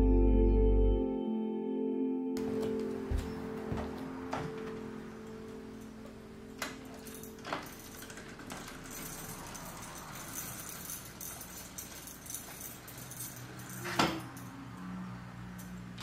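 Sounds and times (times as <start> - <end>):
small metal objects jingling: 6.5 - 16.0.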